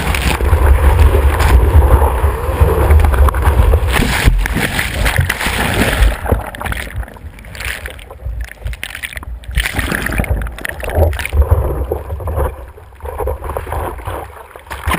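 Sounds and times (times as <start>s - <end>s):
low rumbling water surges: 0.0s - 14.9s
muffled churning surf water: 0.0s - 14.9s.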